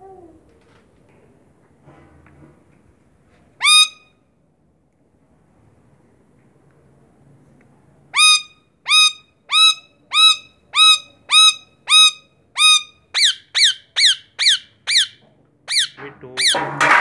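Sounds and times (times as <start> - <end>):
parakeet squawking: 3.6 - 4.1, 8.2 - 16.7.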